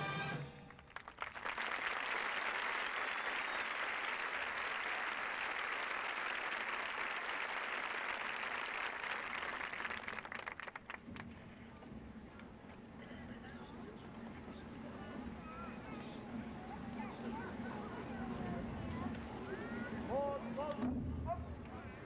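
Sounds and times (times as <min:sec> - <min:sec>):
large crowd applauding: 0:00.7 - 0:11.4.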